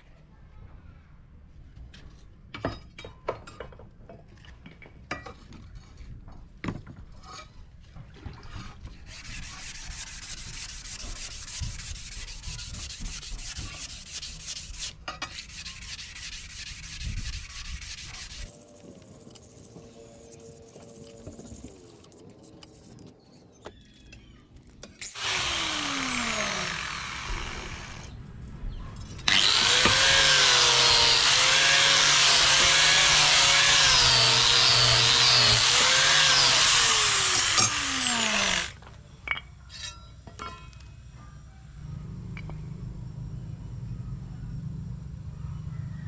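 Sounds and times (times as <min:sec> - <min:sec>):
electric abrasive power tool grinding: 0:25.0 - 0:28.1, 0:29.2 - 0:38.8.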